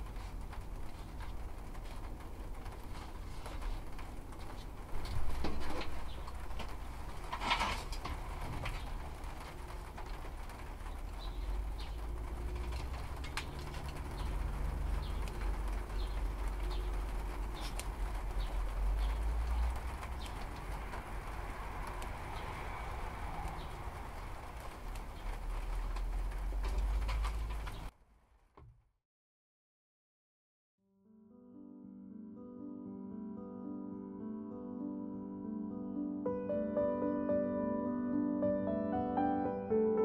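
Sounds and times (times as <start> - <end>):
rustles and taps of pots: 0.0 - 27.9.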